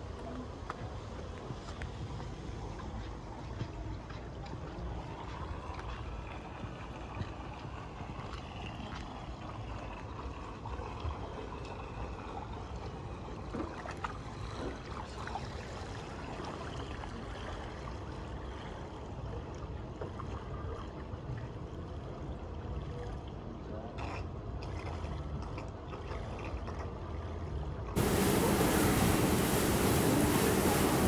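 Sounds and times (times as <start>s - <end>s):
faint voices: 28.0s - 31.0s
low rumble: 28.0s - 31.0s
water rushing and trickling: 28.0s - 31.0s.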